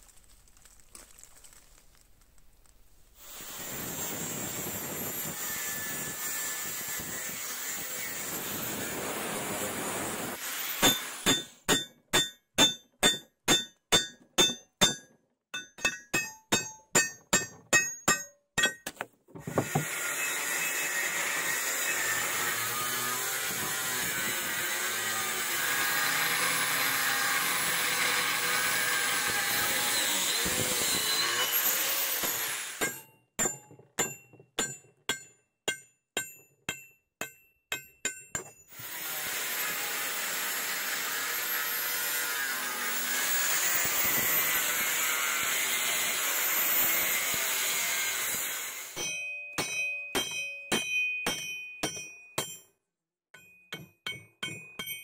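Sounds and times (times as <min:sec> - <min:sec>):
angle grinder grinding steel: 0:03.3 - 0:11.9, 0:19.4 - 0:33.0, 0:38.6 - 0:50.4.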